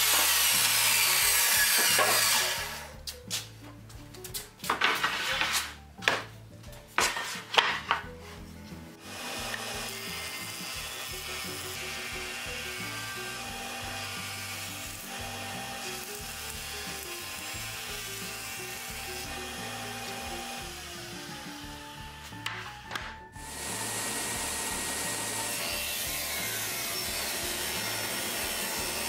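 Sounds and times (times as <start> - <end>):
jointer planing wood: 0.0 - 2.9, 9.0 - 29.0.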